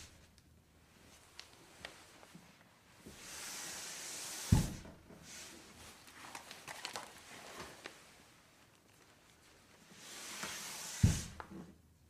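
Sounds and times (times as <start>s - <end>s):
rushing hissing slide: 3.1s - 5.6s, 10.0s - 11.4s
loud thump: 4.5s - 4.9s, 11.0s - 11.4s
light clicks and rustles: 5.9s - 9.7s.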